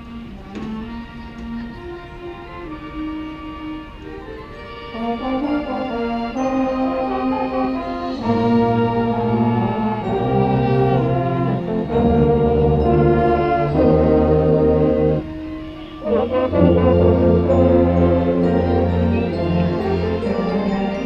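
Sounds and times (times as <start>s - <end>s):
brass band playing held chords: 0.0s - 21.0s.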